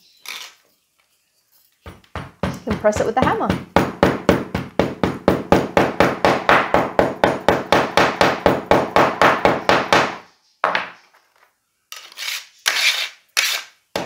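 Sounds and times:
hammer tapping clay: 1.9 - 10.9
brief scrape: 12.0 - 13.7.

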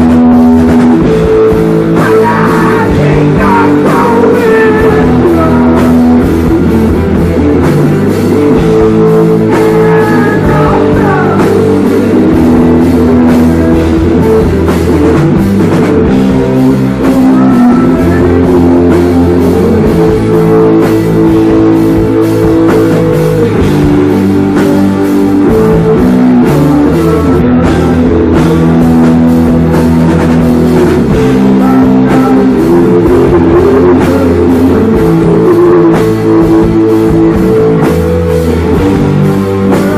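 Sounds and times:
drum kit with cymbal hits: 0.0 - 39.9
electric guitar chords: 0.0 - 39.9
live rock band: 0.0 - 39.9.

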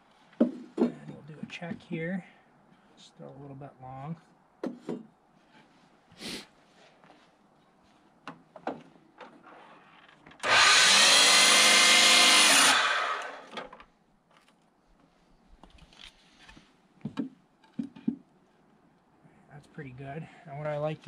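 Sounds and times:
electric miter saw cutting: 10.4 - 13.6.

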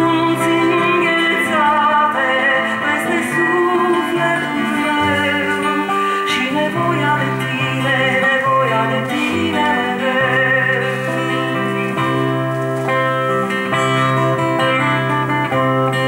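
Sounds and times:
woman singing: 0.0 - 12.4
acoustic guitar chords: 0.0 - 16.0.

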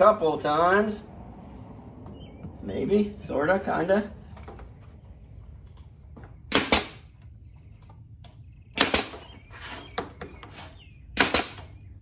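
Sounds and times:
nail gun firing into plywood: 6.5 - 7.0, 8.8 - 9.3, 11.2 - 11.7.

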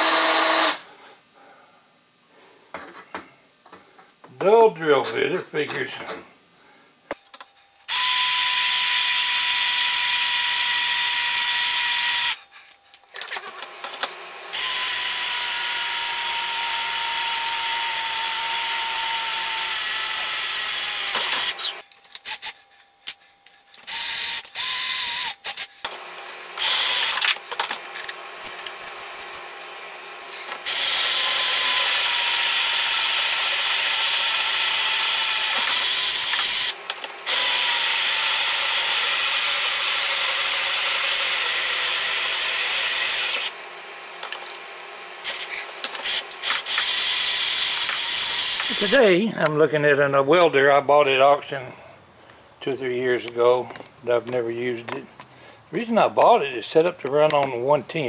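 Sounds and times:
electric drill boring metal: 0.0 - 0.8, 7.9 - 12.4, 13.4 - 22.6, 23.8 - 49.1.

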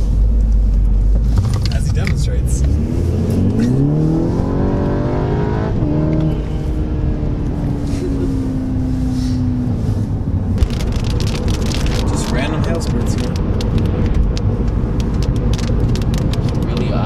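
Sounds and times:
car engine accelerating hard: 1.1 - 17.0.

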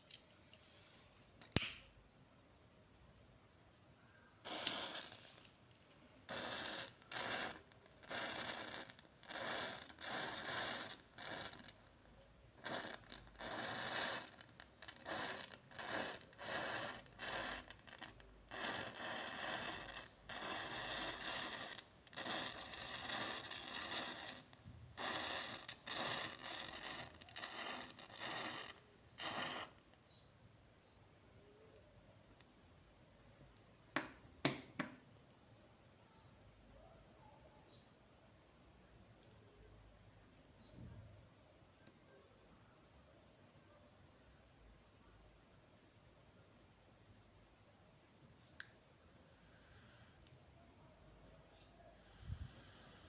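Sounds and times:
sharp match pop: 1.4 - 2.0
match heads igniting with hiss: 4.4 - 5.6, 6.2 - 11.9, 12.6 - 29.9, 52.0 - 53.0.

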